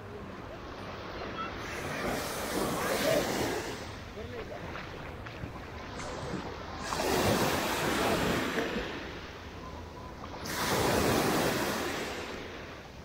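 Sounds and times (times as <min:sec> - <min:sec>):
waves washing on a beach: 0:00.0 - 0:13.0.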